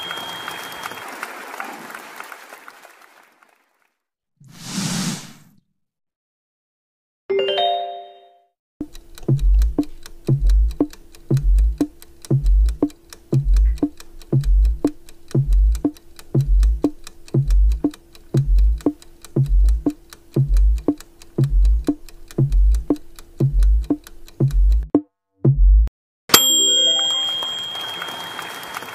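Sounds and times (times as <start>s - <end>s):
short chime: 0.0s - 1.0s, 26.3s - 28.9s
countdown timer music: 7.3s - 25.9s.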